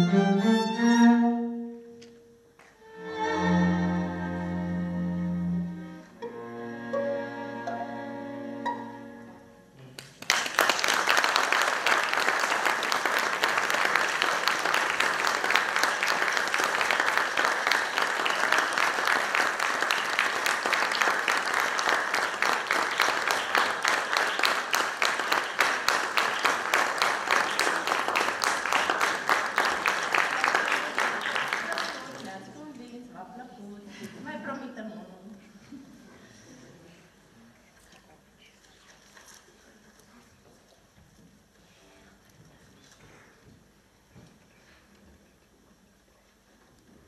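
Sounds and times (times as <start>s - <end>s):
audience applauding: 10.0s - 32.5s.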